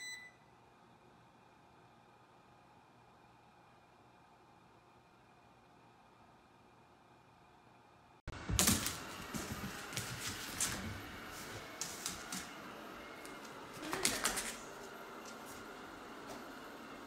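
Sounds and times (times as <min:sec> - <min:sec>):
dogs playing and scuffling: 0:08.4 - 0:16.4.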